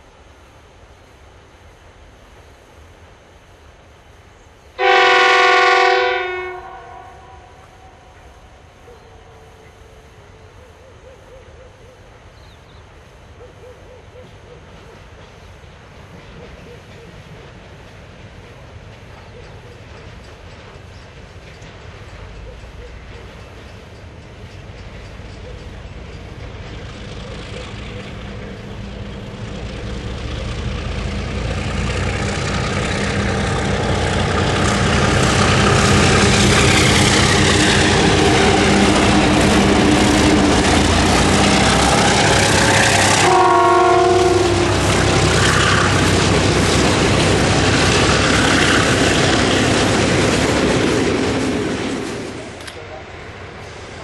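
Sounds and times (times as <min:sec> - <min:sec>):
diesel locomotive engines: 0:00.0 - 0:54.0
locomotive horn: 0:04.8 - 0:08.1, 0:37.6 - 0:46.2.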